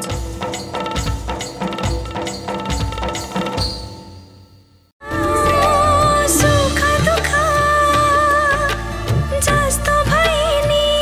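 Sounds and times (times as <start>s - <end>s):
theme music with wavering melody: 5.0s - 9.2s.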